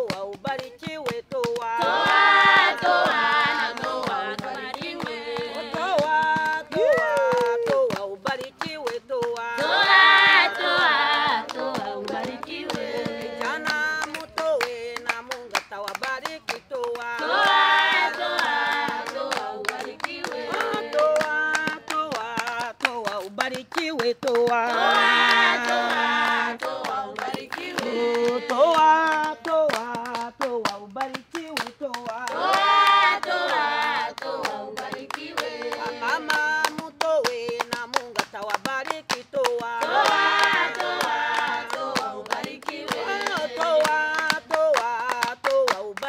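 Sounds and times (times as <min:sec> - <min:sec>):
women singing together: 0:00.0 - 0:23.5, 0:24.4 - 0:30.3, 0:32.0 - 0:37.0, 0:39.4 - 0:46.0
hand claps: 0:00.0 - 0:46.0
loud high voice singing: 0:05.8 - 0:08.0.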